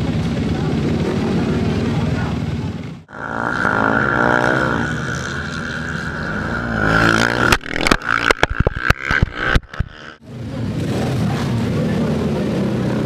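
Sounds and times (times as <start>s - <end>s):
motorcycle engines running hard: 0.0s - 13.0s
sharp cracks and knocks: 7.3s - 10.2s.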